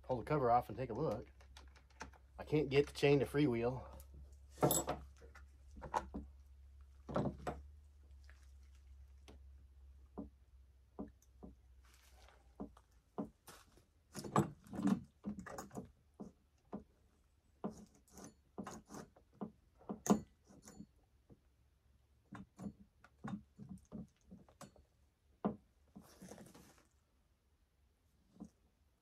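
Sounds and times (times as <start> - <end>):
scraping rustle: 25.9 - 27.0.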